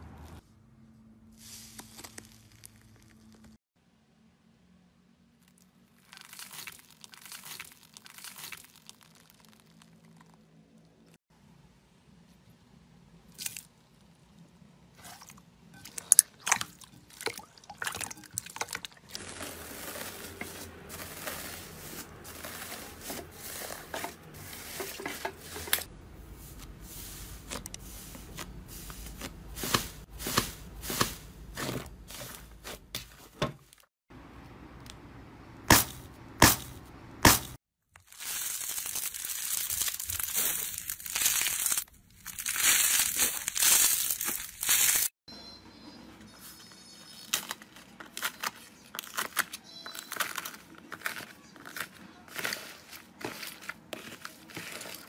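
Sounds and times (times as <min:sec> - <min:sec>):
slime squishing: 0:05.5 - 0:10.5, 0:15.0 - 0:33.3, 0:47.4 - 0:55.0
slime crackling tearing hiss: 0:38.1 - 0:45.1.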